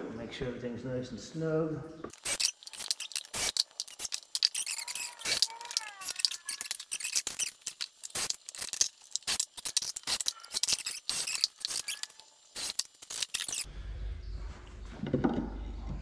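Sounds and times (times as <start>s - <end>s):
screws and drill rattling: 2.1s - 13.7s.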